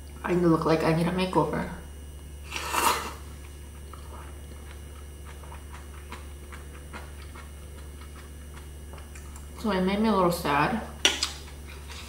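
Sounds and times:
air fryer humming: 0.0s - 12.0s
noodle slurp: 2.4s - 3.3s
soft wet chewing: 2.5s - 9.6s.

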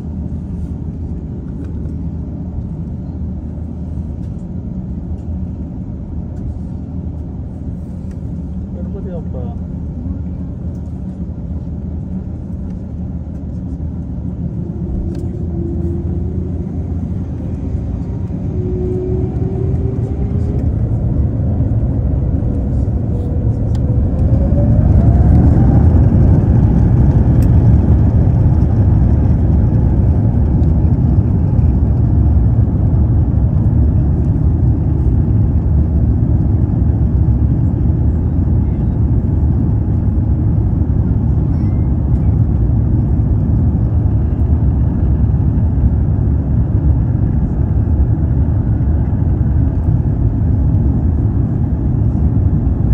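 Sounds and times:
jet engines spooling up: 13.0s - 32.8s.

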